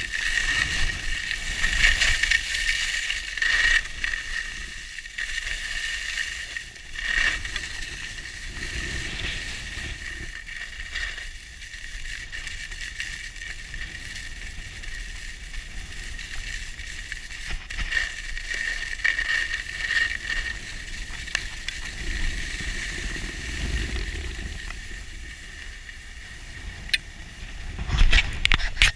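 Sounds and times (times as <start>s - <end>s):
skis scraping over snow: 0.0s - 28.9s
wind rumble on microphone: 6.6s - 28.9s.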